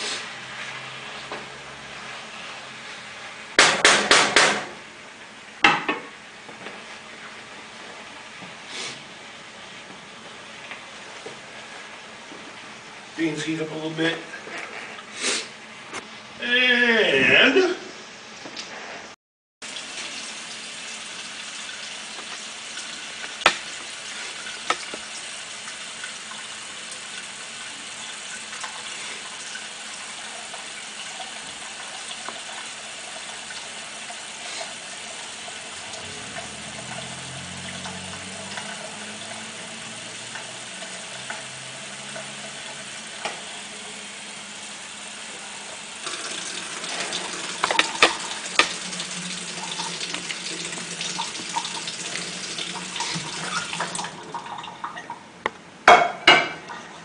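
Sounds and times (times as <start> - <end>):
pan knocking on sink: 3.6 - 4.7, 5.6 - 6.1, 47.6 - 48.8, 55.9 - 56.7
faucet water splashing into pan: 19.6 - 43.9, 45.7 - 55.2.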